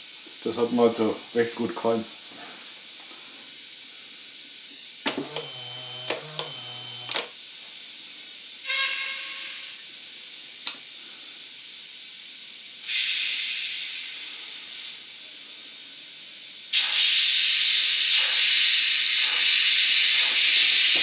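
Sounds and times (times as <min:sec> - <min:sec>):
model turntable motor humming: 0:05.1 - 0:07.3
sharp clicks: 0:05.1 - 0:07.3
hiss of steam: 0:12.8 - 0:15.7, 0:16.7 - 0:21.0.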